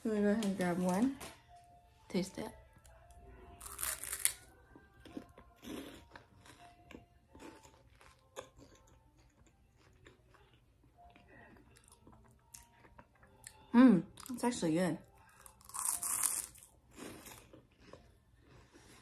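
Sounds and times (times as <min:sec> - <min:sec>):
crunchy snack chewing: 0:03.6 - 0:10.6, 0:15.3 - 0:19.0.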